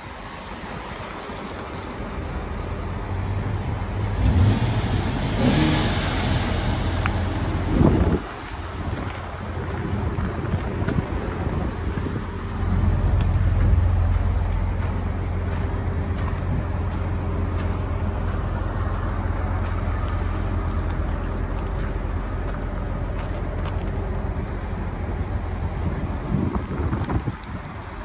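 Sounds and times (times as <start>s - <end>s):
engine idling: 1.1s - 26.9s
footsteps on gravel: 12.7s - 24.0s.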